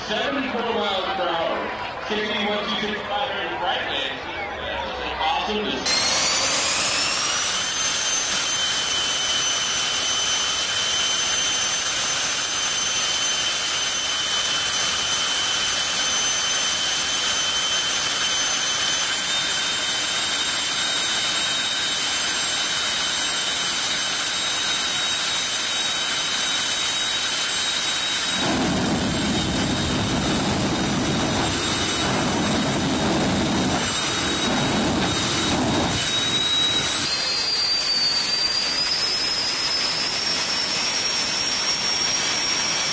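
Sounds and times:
jet engine high whine: 0:00.0 - 0:42.9
low rough rumble: 0:28.3 - 0:37.1.

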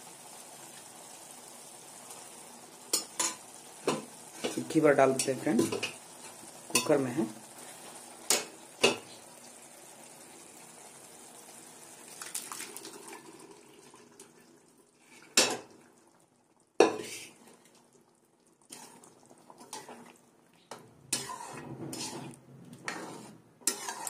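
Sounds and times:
faint simmering hiss: 0:00.0 - 0:24.0
ladle stirring and scraping: 0:18.6 - 0:24.0.

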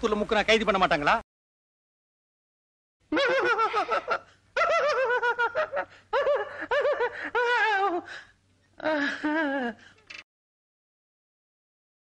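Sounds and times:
high-pitched laughter: 0:03.1 - 0:08.1.

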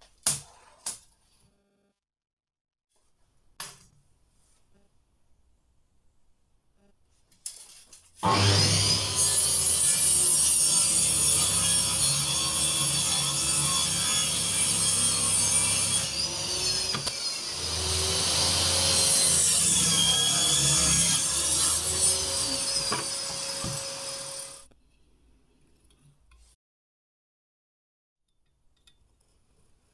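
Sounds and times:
table saw cutting wood: 0:08.2 - 0:24.7.

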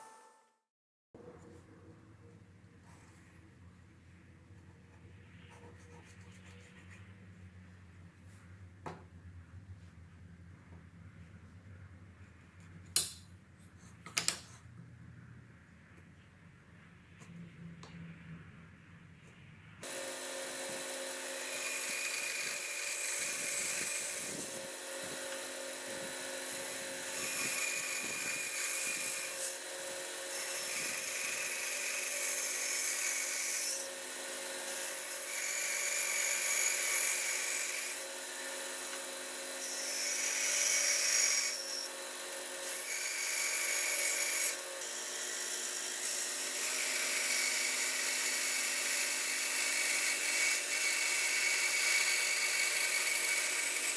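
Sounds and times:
bandsaw blade whine cutting wood: 0:19.8 - 0:53.9
bandsaw motor hum: 0:19.8 - 0:53.9.

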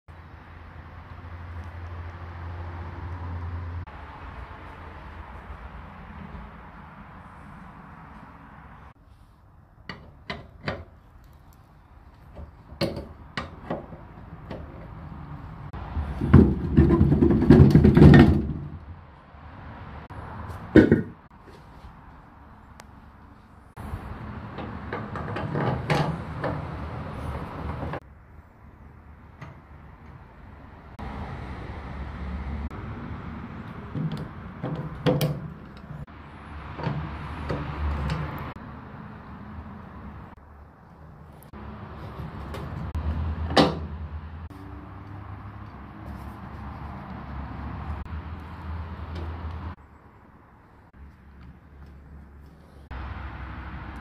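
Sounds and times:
metal knocks and clanks: 0:12.3 - 0:15.0, 0:16.1 - 0:18.9, 0:24.5 - 0:28.0, 0:33.9 - 0:36.1.

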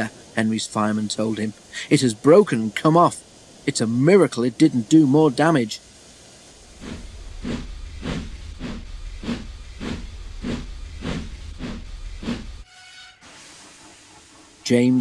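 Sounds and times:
steam locomotive chuffing: 0:00.0 - 0:15.0
low rumble: 0:06.5 - 0:12.7.

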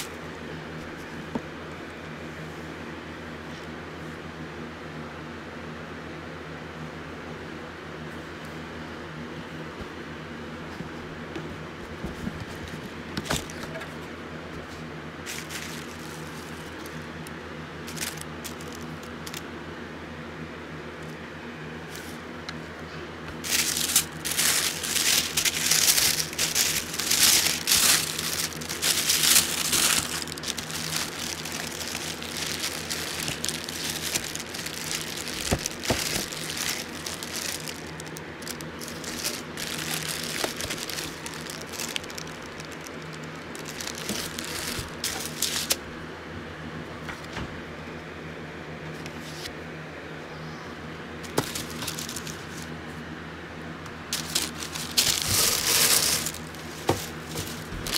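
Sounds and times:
paper and plastic crinkling: 0:14.6 - 0:19.4, 0:23.3 - 0:45.8, 0:51.2 - 0:52.7, 0:54.1 - 0:57.9.

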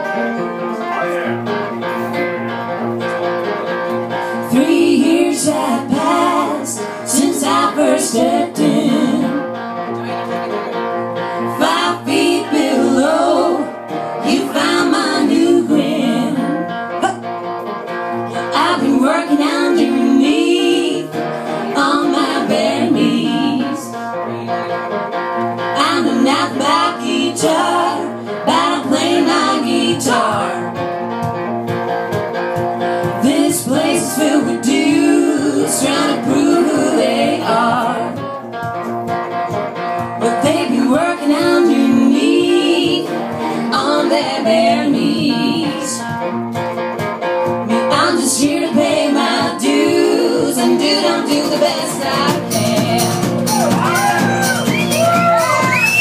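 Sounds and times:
acoustic guitar: 0:00.0 - 0:56.0
banjo: 0:00.0 - 0:56.0
upright double bass: 0:00.0 - 0:56.0
women singing: 0:04.3 - 0:09.6, 0:11.4 - 0:17.2, 0:18.3 - 0:24.1, 0:25.6 - 0:31.0, 0:32.8 - 0:38.4, 0:40.0 - 0:46.3, 0:47.6 - 0:54.2.

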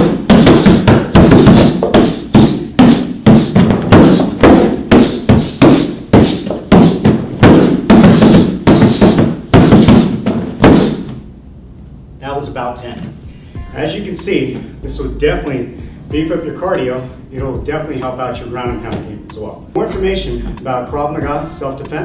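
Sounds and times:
strikes thudding on padded pad: 0:00.0 - 0:11.2.

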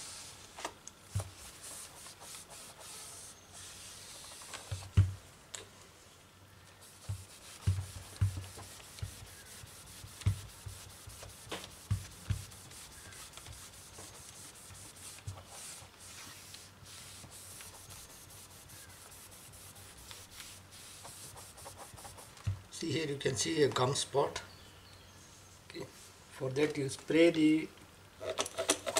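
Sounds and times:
cloth rubbing on a screen: 0:00.0 - 0:00.5, 0:01.2 - 0:05.0, 0:06.8 - 0:22.6.

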